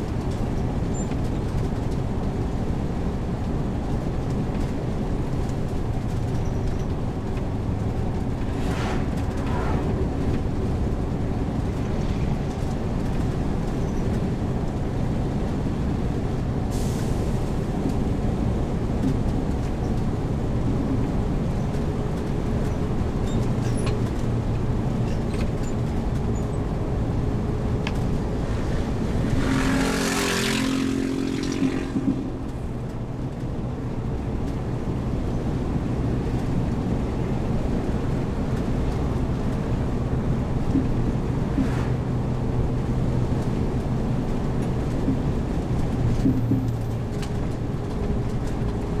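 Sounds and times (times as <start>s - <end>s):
air brake hiss: 16.7s - 17.4s.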